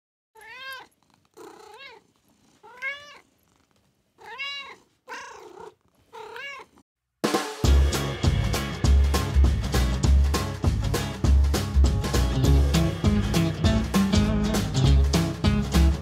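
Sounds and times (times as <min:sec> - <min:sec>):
cat meowing: 0:00.4 - 0:03.3, 0:04.2 - 0:06.8
music with a beat: 0:07.2 - 0:16.0.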